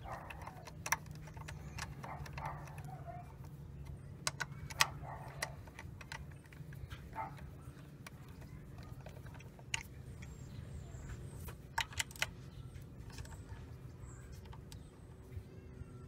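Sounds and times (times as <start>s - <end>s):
ratchet metal clicks and taps: 0.0s - 10.4s, 11.5s - 13.6s.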